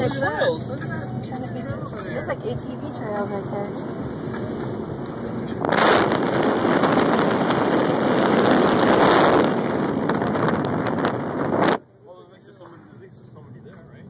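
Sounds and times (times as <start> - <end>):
wind buffeting microphone: 3.7 - 11.8
dense crackle: 5.7 - 11.8.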